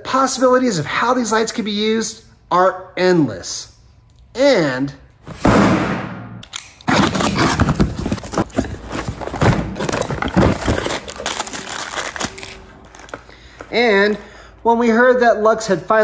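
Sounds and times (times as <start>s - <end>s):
cardboard rustling: 6.9s - 14.2s
plastic crinkling: 6.9s - 14.4s.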